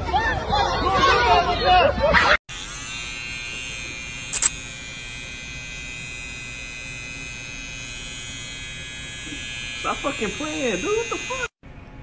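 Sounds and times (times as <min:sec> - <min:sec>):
electric hair clippers buzzing: 0:02.5 - 0:11.6.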